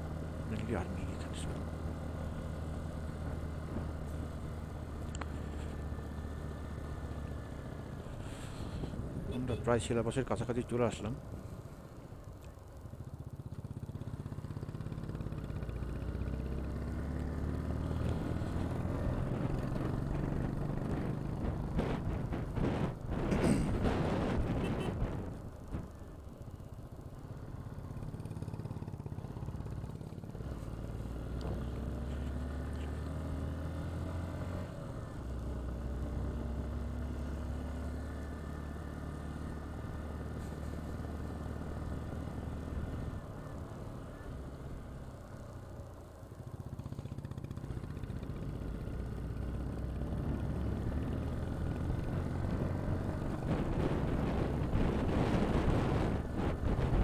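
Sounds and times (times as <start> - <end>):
motorcycle engine running: 0.0 - 57.0
wind noise: 20.2 - 25.8, 52.4 - 57.0.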